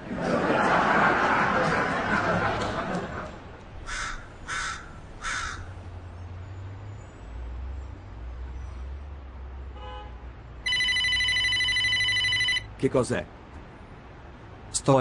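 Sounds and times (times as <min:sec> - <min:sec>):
crow cawing: 0:03.8 - 0:05.8
telephone ringing: 0:10.6 - 0:12.7.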